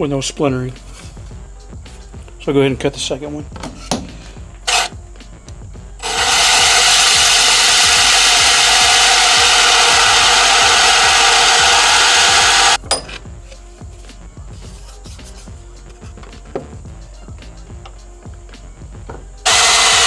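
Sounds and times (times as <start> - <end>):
power drill with hole saw grinding: 4.7 - 4.9, 6.0 - 12.8, 19.4 - 20.0.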